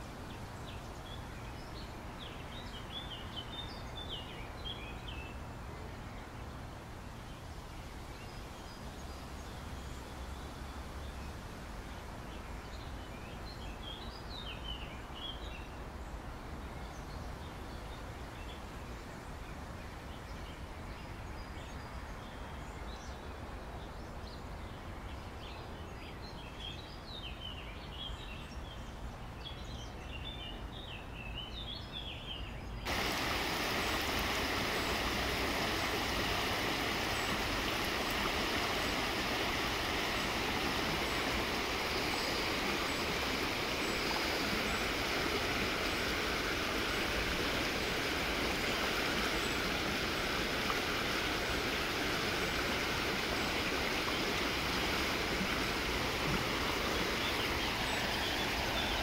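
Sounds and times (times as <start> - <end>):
small birds chirping: 25.5 - 59.0
running water: 32.9 - 59.0
waterfall rushing: 32.9 - 59.0.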